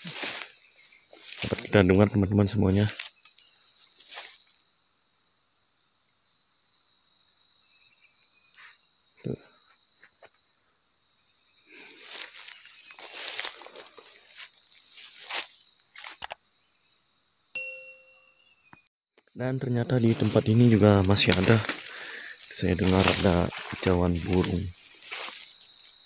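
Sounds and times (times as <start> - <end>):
insect chorus: 0.0 - 26.0
handling bumps and rustles: 22.6 - 25.8.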